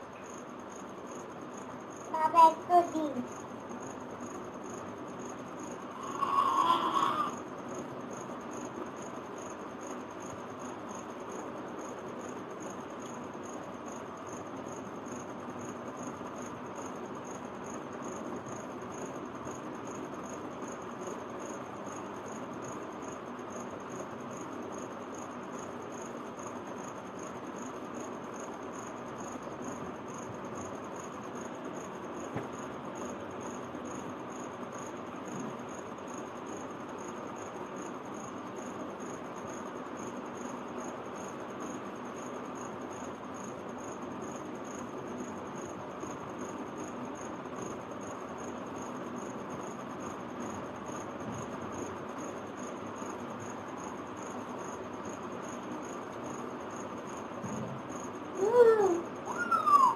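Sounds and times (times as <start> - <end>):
high-pitched pulsing chirp: 58.4 - 59.9.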